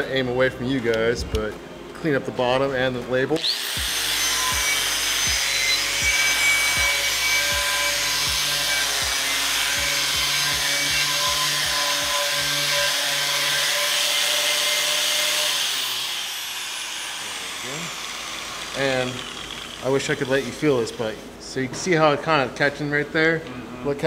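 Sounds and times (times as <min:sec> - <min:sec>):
angle grinder motor whine: 0:15.6 - 0:20.3.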